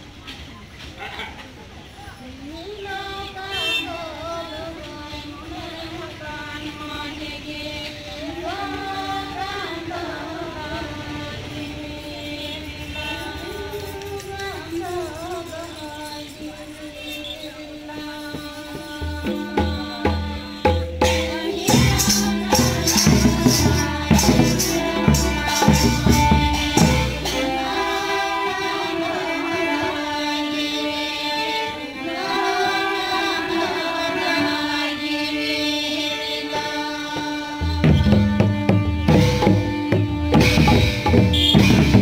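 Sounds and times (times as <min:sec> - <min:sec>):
woman singing into microphone: 0:02.2 - 0:39.9
harmonium: 0:02.7 - 0:42.0
hand drums: 0:18.0 - 0:27.8, 0:37.1 - 0:42.0.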